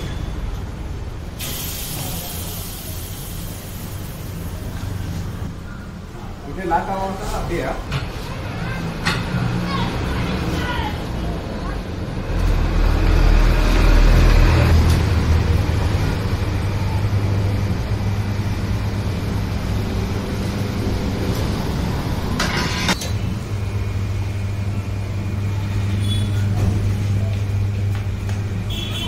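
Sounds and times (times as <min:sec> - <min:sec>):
air hissing: 0:01.3 - 0:05.4
low machine hum: 0:14.6 - 0:29.0.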